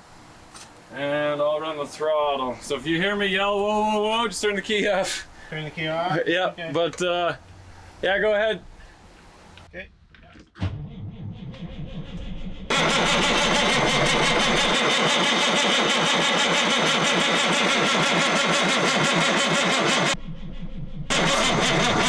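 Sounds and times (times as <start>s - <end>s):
diesel engine cranking: 10.6s - 20.2s, 21.1s - 22.0s.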